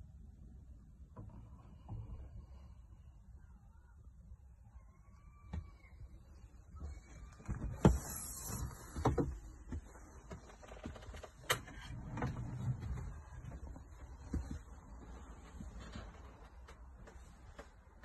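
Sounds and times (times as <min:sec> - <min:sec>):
rumbling handling noise: 0:06.8 - 0:18.0.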